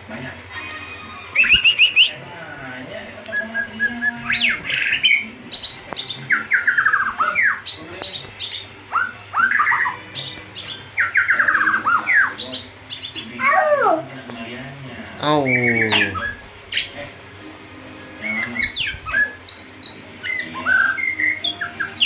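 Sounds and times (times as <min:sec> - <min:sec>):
songbird singing: 0:01.3 - 0:02.2, 0:03.2 - 0:13.9, 0:15.2 - 0:16.9, 0:18.2 - 0:22.0.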